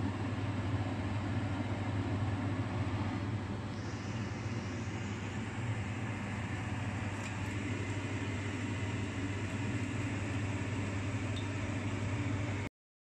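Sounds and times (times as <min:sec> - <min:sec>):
low mechanical hum: 0:00.0 - 0:12.7
hiss: 0:03.7 - 0:06.4.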